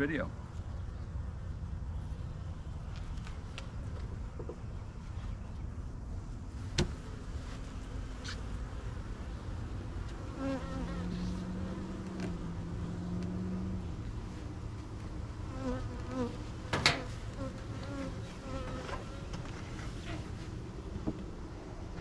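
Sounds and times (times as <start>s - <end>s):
bees buzzing: 7.1s - 19.4s.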